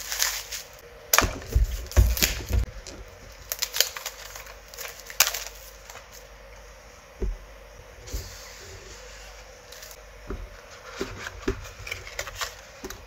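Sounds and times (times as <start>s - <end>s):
plastic wrapping crinkling: 0.0s - 6.3s.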